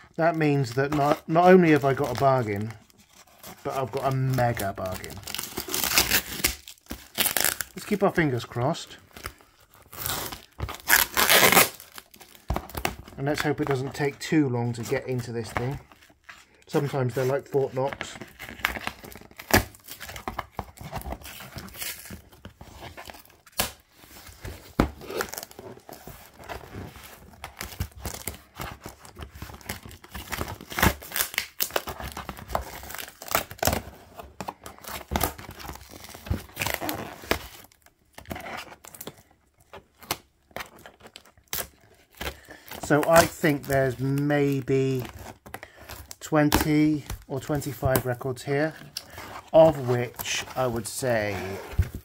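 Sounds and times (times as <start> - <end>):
packing tape ripping: 3.8 - 7.9, 9.9 - 13.0, 24.5 - 26.0, 29.3 - 33.9.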